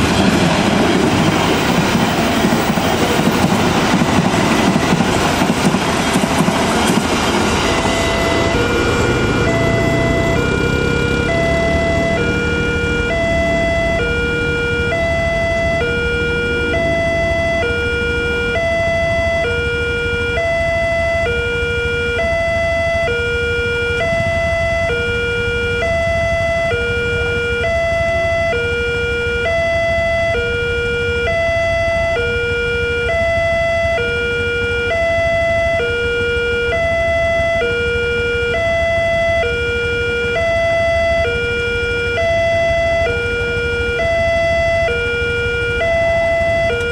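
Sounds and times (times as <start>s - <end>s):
level crossing two-tone alarm: 2.2s - 46.9s.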